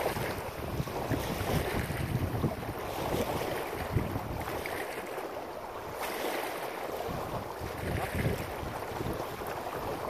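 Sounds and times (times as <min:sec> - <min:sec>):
wind gusting across microphone: 0:00.0 - 0:04.7, 0:07.0 - 0:10.0.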